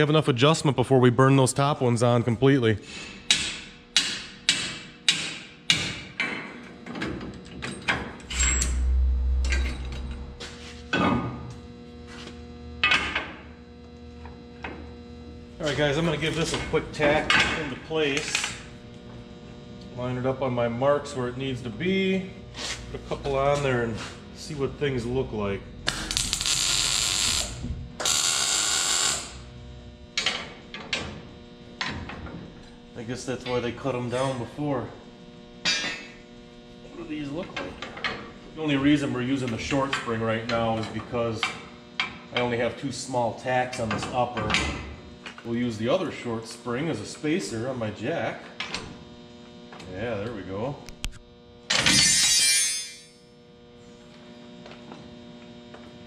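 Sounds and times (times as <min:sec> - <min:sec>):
low steady hum: 0:07.6 - 0:41.8
welding crackling hiss: 0:25.9 - 0:29.5.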